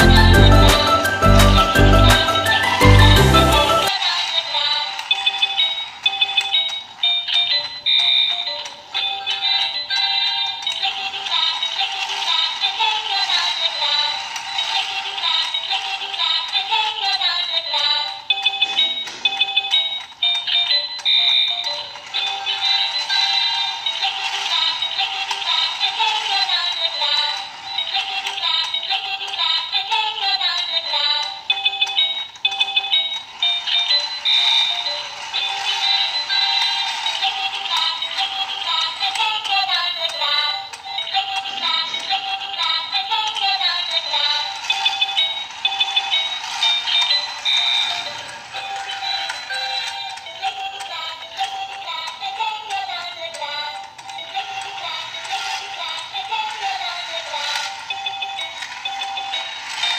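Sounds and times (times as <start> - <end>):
tinny electronic tune: 0.0 - 3.9
synthesized singing voice: 0.0 - 4.9
plastic toy stairs clicking: 3.9 - 59.9.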